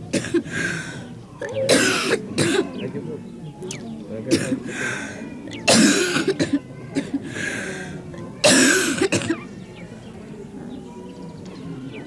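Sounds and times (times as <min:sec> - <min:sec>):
person coughing: 0:05.7 - 0:06.6.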